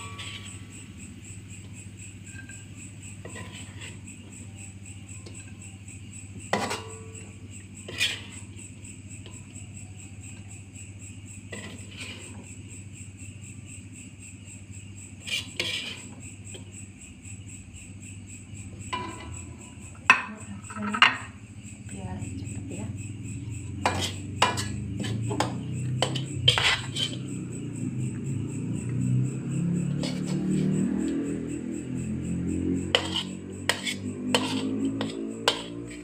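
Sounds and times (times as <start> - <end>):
metal spatula scraping wok: 0.0 - 4.4, 6.4 - 8.6, 11.4 - 12.5, 15.2 - 16.6, 18.8 - 21.4, 23.3 - 27.4, 29.9 - 30.7, 32.8 - 36.0.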